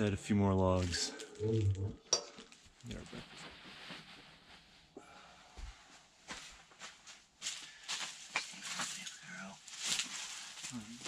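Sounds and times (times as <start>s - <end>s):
faint rustling: 2.5s - 11.0s.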